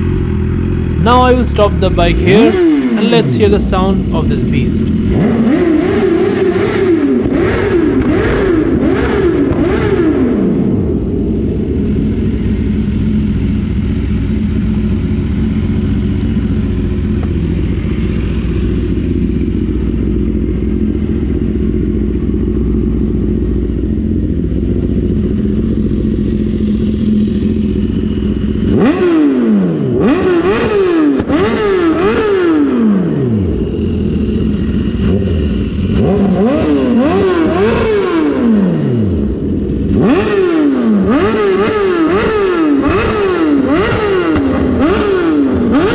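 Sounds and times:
motorcycle engine idling: 0:00.0 - 0:01.0, 0:11.3 - 0:28.9, 0:33.5 - 0:36.0
engine revving in throttle blips: 0:04.9 - 0:11.1, 0:28.6 - 0:45.9.

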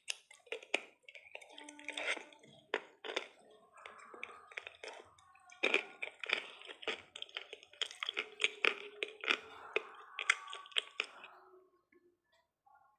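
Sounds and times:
chewing a sweet: 0:00.0 - 0:11.4.

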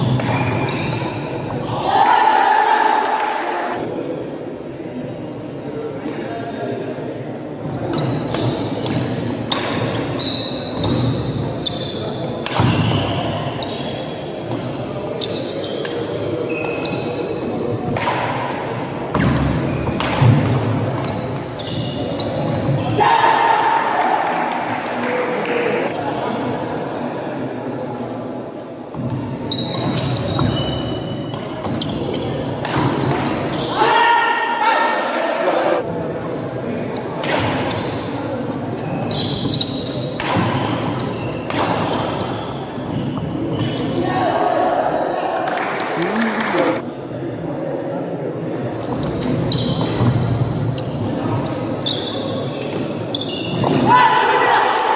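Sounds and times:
rackets hitting shuttlecock: 0:00.0 - 0:01.3, 0:07.8 - 0:10.1, 0:12.4 - 0:13.2, 0:17.9 - 0:21.6, 0:39.5 - 0:42.2
shoe squeaks on wooden floor: 0:00.0 - 0:01.3, 0:10.1 - 0:12.1, 0:12.8 - 0:15.9, 0:16.5 - 0:17.4, 0:21.6 - 0:22.8, 0:29.5 - 0:32.5, 0:38.8 - 0:40.2, 0:40.9 - 0:44.0, 0:48.8 - 0:52.4, 0:53.1 - 0:53.8
spectators chattering: 0:00.0 - 0:54.9.

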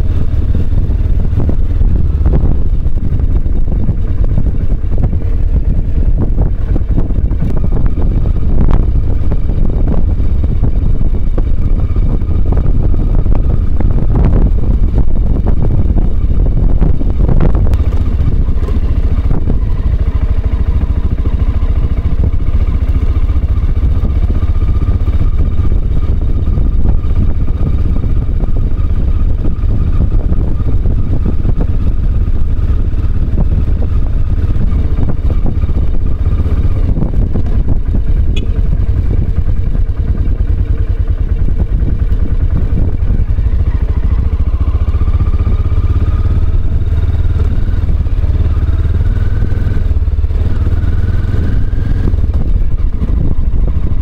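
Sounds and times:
motorcycle engine rumble: 0:00.0 - 0:54.0
faint whine: 0:33.8 - 0:48.9.

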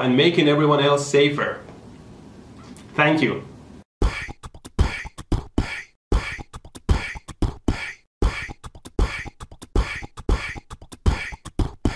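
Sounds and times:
beatbox percussive jingle: 0:04.0 - 0:11.9.

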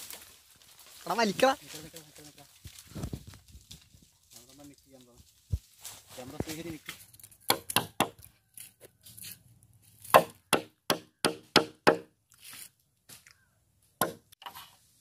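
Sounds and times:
wooden mallet striking bamboo: 0:07.5 - 0:08.2, 0:10.1 - 0:12.1, 0:14.0 - 0:14.4.

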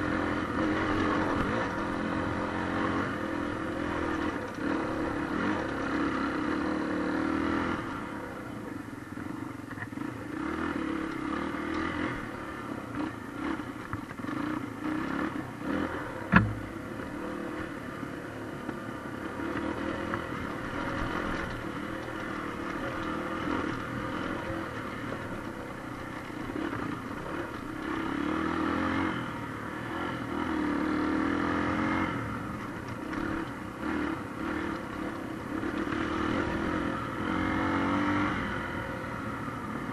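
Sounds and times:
motorcycle engine revving: 0:00.0 - 0:39.9
motorcycle rattling: 0:00.0 - 0:39.9
sharp knock: 0:16.3 - 0:16.6.

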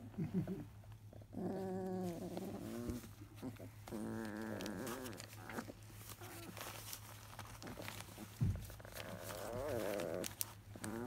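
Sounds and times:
rustles and clicks: 0:00.9 - 0:11.0
puppies whining: 0:01.2 - 0:11.0
dull thump: 0:08.4 - 0:08.7.

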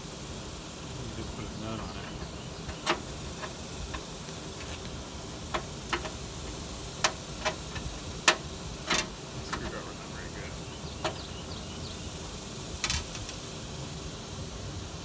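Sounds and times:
tools clicking and tapping: 0:05.5 - 0:09.6.

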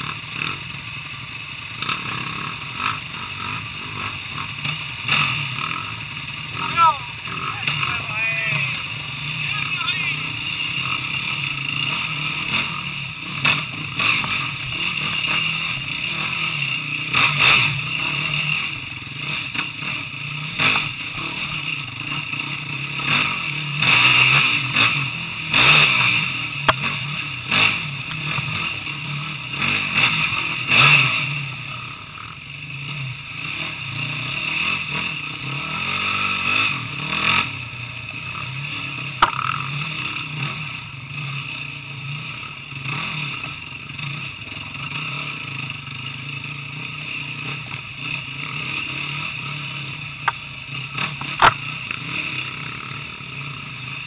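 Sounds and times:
motorcycle engine running: 0:00.0 - 0:54.0
bike knocking over rocks: 0:39.2 - 0:39.6.

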